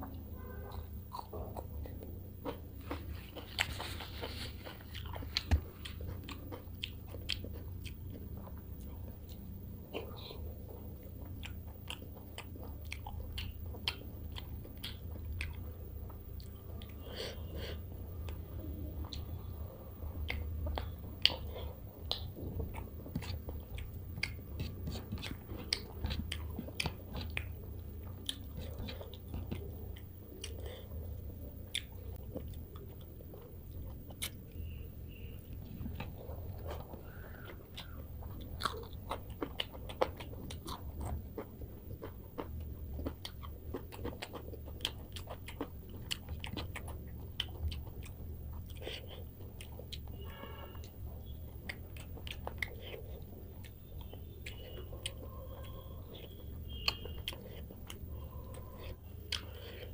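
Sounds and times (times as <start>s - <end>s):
chewing and biting: 0.0s - 59.9s
mouth clicks and smacks: 17.7s - 59.9s.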